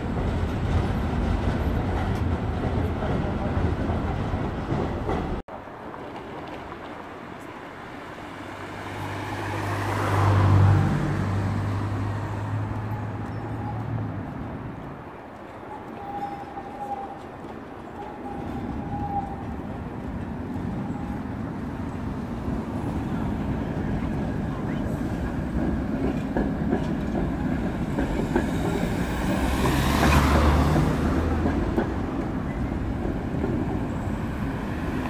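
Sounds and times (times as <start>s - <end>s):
street traffic: 0.0s - 35.0s
vehicle passing by: 8.7s - 14.0s, 28.8s - 31.5s.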